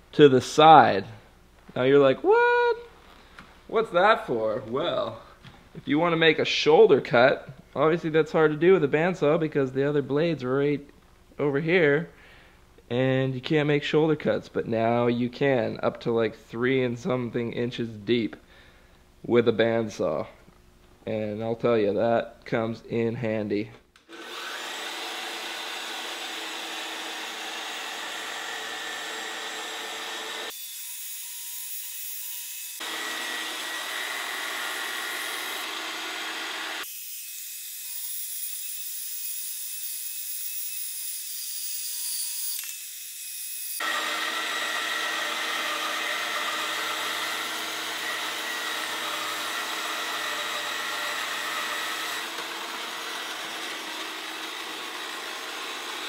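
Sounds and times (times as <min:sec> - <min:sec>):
bandsaw motor whine: 0:24.1 - 0:30.6, 0:32.8 - 0:36.9, 0:43.8 - 0:56.0.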